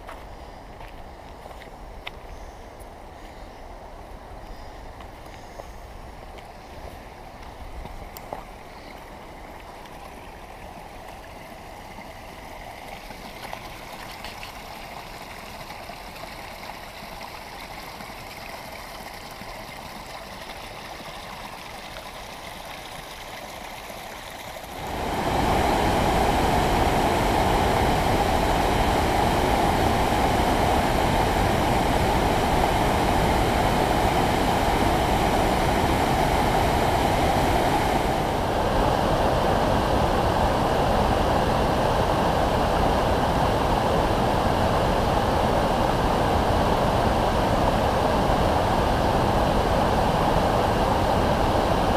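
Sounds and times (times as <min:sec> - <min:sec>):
river rushing over boulders: 0:23.6 - 0:51.9.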